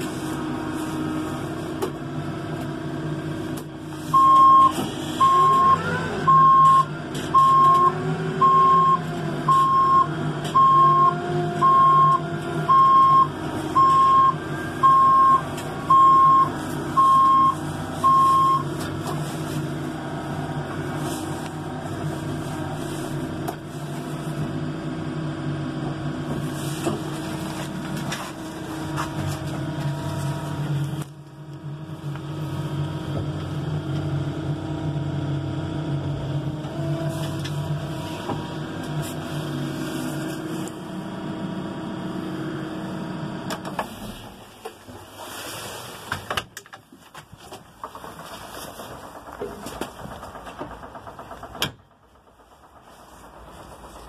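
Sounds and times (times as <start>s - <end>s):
diesel engine running: 0.0s - 54.0s
reverse alarm beeping: 4.1s - 18.7s.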